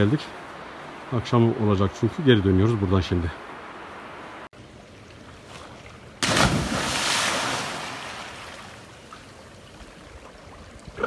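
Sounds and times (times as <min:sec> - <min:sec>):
water churning: 0:05.3 - 0:11.0
body splashing into river: 0:05.5 - 0:08.9.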